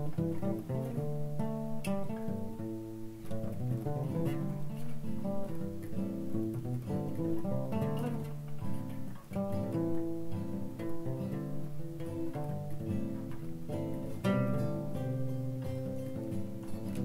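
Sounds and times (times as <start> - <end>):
acoustic guitar playing a tune: 0.0 - 17.0.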